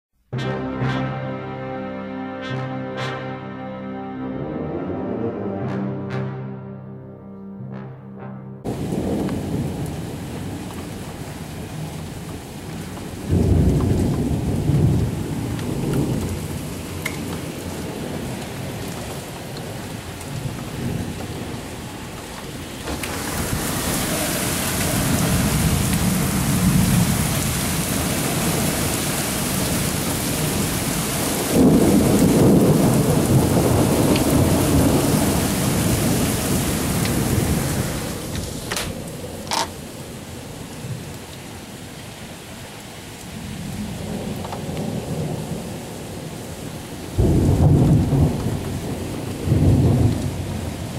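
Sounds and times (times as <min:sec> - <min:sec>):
thunder rumbling: 0:08.7 - 0:41.2, 0:43.4 - 0:50.9
rain hissing: 0:08.7 - 0:50.9.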